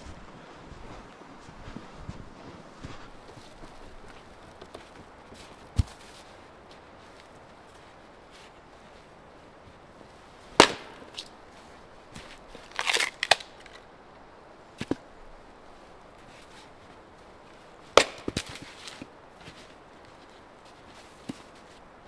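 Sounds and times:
axe splitting firewood: 5.7s - 6.1s, 10.6s - 11.3s, 12.2s - 13.8s, 17.9s - 19.1s.

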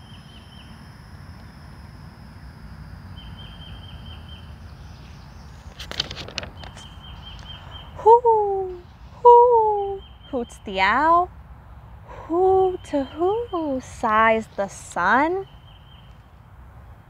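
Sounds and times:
low outdoor rumble: 0.0s - 17.0s
bird trilling: 3.1s - 5.7s, 6.4s - 11.2s, 12.6s - 16.2s
book page turning: 5.6s - 6.9s.

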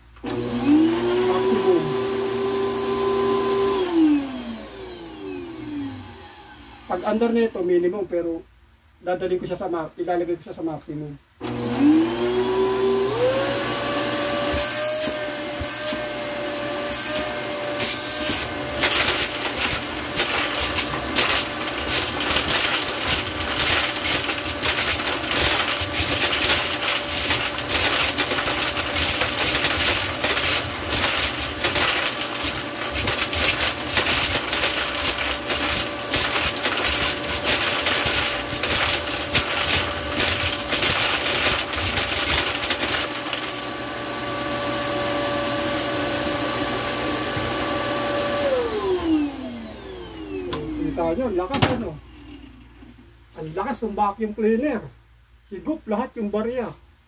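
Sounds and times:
vacuum cleaner whine: 0.0s - 7.6s, 11.4s - 52.8s
coins clattering through hose: 17.0s - 43.6s.

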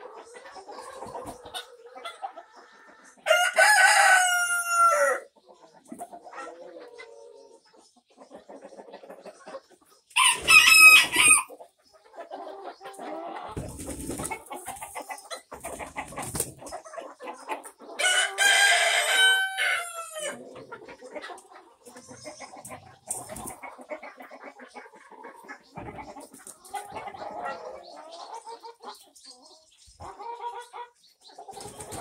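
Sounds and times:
hens clucking: 0.0s - 32.0s
rooster crowing: 3.3s - 5.2s, 10.2s - 11.5s, 18.0s - 20.3s.

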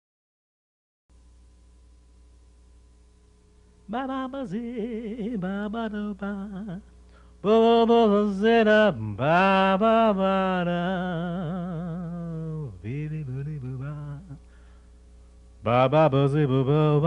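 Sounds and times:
man singing unaccompanied: 3.9s - 14.5s, 15.6s - 17.0s.

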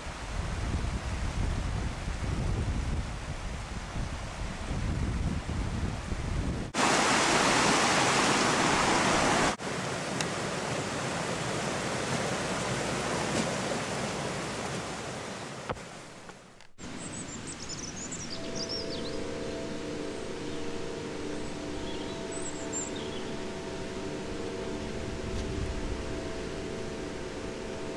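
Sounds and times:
high chirps: 16.8s - 27.9s
low steady tones: 16.8s - 27.9s.

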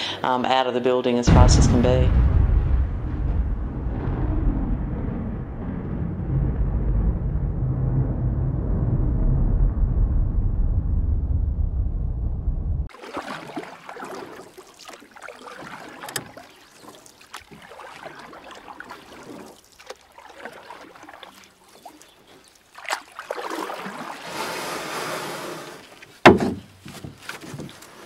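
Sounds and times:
water splashing and swishing: 12.8s - 28.0s
knocks: 26.2s - 27.7s.

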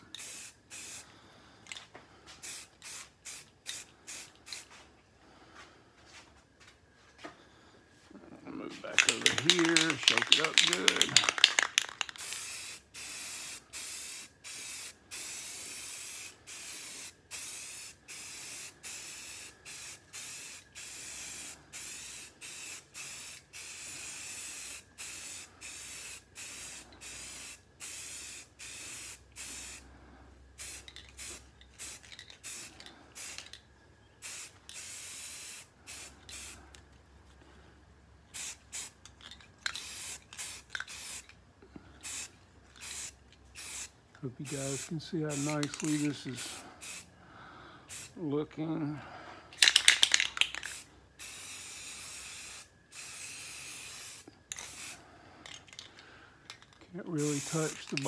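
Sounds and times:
spray paint can hissing: 0.1s - 1.1s, 2.4s - 4.8s, 8.8s - 29.8s, 30.6s - 33.6s, 34.2s - 36.7s, 38.3s - 39.0s, 39.6s - 41.3s, 42.0s - 47.1s, 47.9s - 48.2s, 49.6s - 55.9s, 57.1s - 58.0s.

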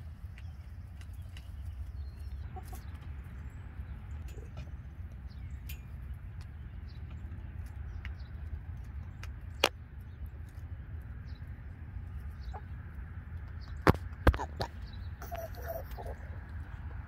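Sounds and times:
hens clucking: 2.2s - 4.7s, 12.2s - 13.0s, 13.9s - 17.0s.

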